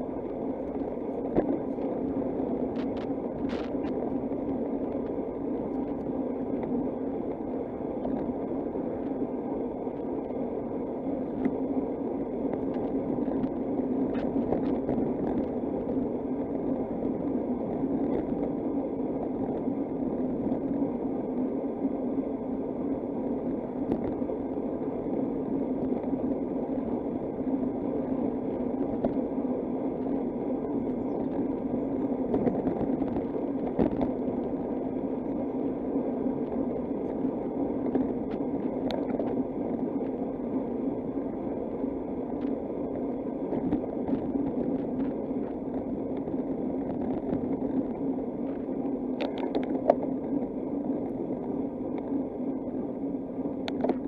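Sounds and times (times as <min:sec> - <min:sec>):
wind on microphone: 0:00.0 - 0:09.3, 0:11.2 - 0:54.0.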